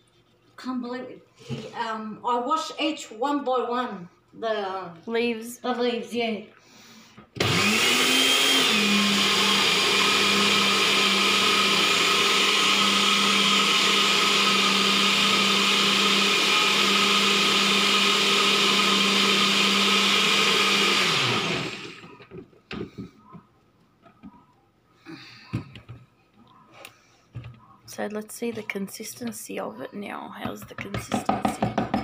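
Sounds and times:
blender motor whine: 0:07.4 - 0:22.3.

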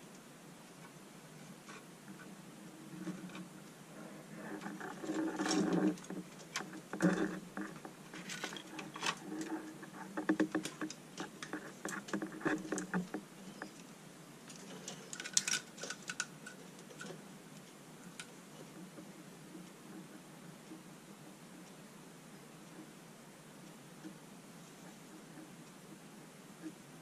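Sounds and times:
light strips clicking and scraping: 0:04.3 - 0:13.9, 0:14.5 - 0:18.8.

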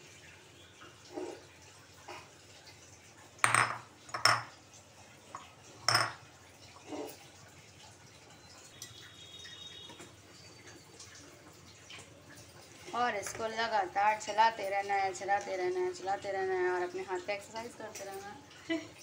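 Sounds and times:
metal utensils clinking: 0:05.9 - 0:06.2.

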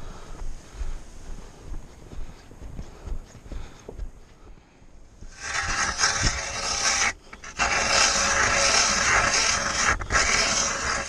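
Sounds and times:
ice auger scraping through ice: 0:05.3 - 0:11.0.

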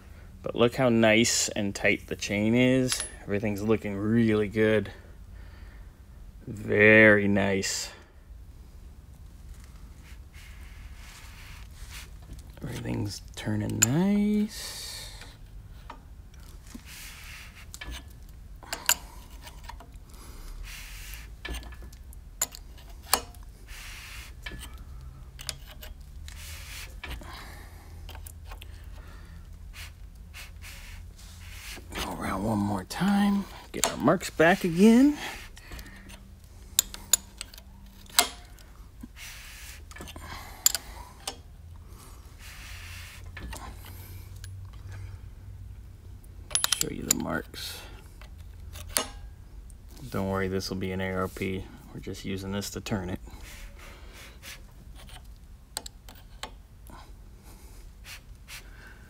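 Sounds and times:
soft rustling: 0:09.0 - 0:14.6
sharp metallic clicks and clunks: 0:33.7 - 0:34.8, 0:35.6 - 0:38.6, 0:46.4 - 0:47.4, 0:48.2 - 0:49.2
wrench clicking on engine bolt: 0:35.6 - 0:38.7, 0:39.9 - 0:41.4, 0:46.5 - 0:47.3.

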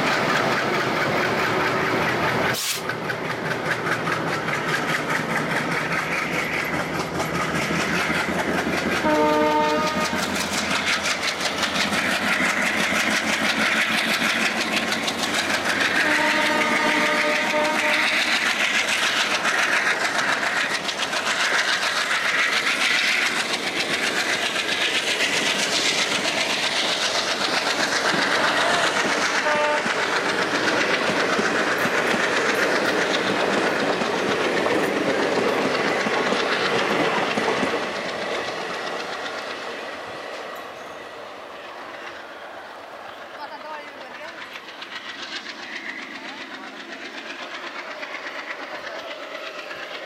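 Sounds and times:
diesel locomotive running: 0:00.0 - 0:50.0
train wheels clattering on rails: 0:00.0 - 0:50.0
train horn: 0:09.0 - 0:10.3, 0:16.0 - 0:18.3, 0:29.3 - 0:30.0.

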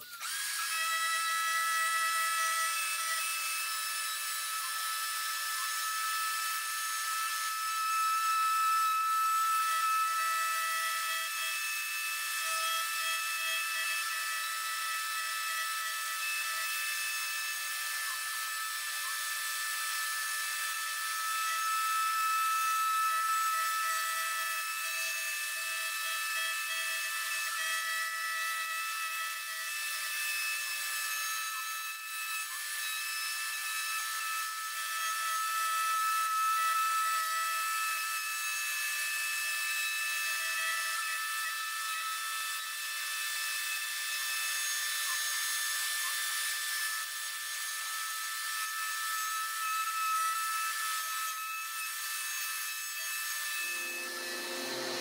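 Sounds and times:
router whining: 0:00.0 - 0:55.0
low hum: 0:53.6 - 0:55.0
wet vacuum hissing: 0:53.6 - 0:55.0.

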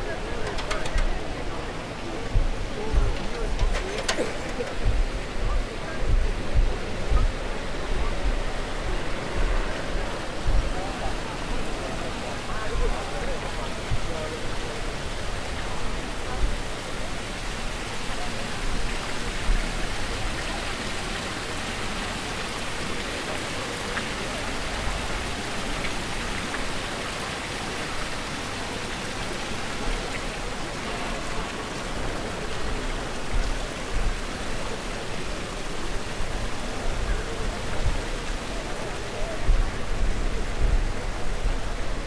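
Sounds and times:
falling splashing water: 0:00.0 - 0:42.0.

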